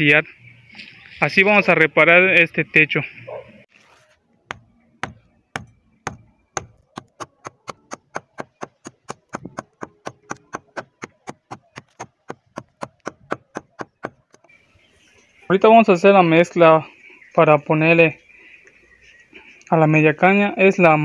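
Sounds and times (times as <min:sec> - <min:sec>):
hand pick chipping concrete: 0:04.5 - 0:14.5.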